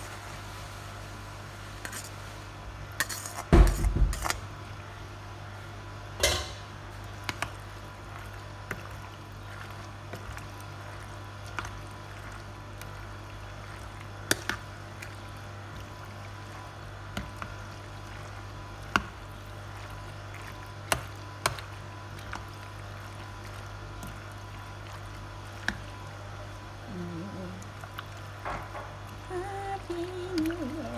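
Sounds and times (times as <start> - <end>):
wet squishing of stirred salad: 7.3 - 26.5.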